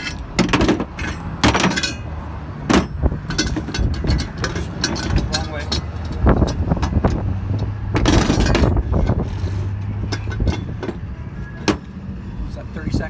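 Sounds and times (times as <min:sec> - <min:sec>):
metallic knocks and clicks: 0:00.0 - 0:02.1, 0:02.7 - 0:09.2
metal scraping: 0:00.0 - 0:11.9.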